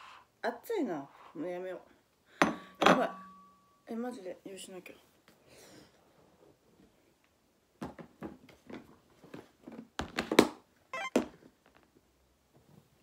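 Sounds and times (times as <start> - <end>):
plastic knocks and clatters: 7.8 - 11.4.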